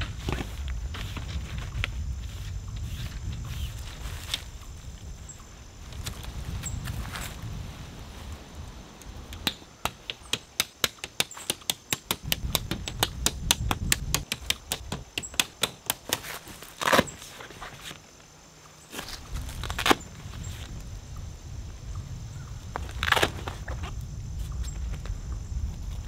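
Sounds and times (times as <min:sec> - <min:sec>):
tent rustle: 0:00.0 - 0:09.3, 0:16.2 - 0:20.8.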